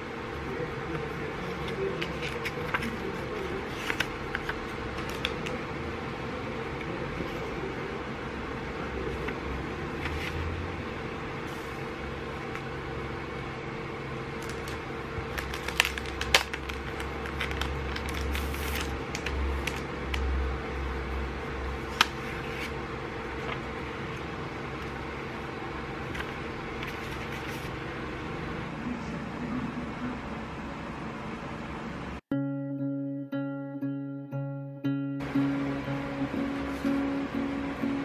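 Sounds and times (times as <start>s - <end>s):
low background hum: 0.0s - 38.0s
paper rustling: 0.9s - 5.6s, 14.4s - 20.2s, 21.8s - 22.8s, 26.0s - 27.7s.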